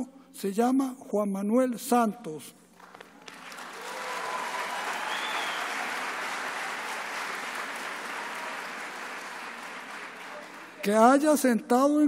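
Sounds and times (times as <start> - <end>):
audience applauding: 2.8 - 11.1.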